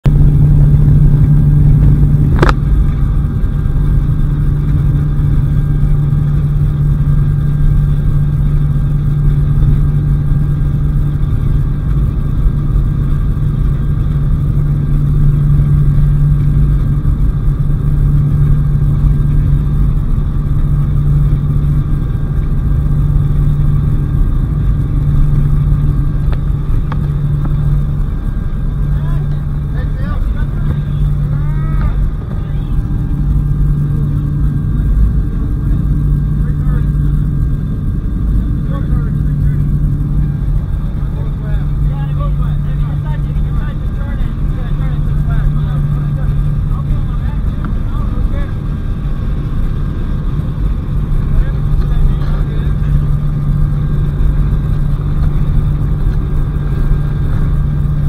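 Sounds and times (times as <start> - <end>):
plane engine droning: 0.0 - 58.0.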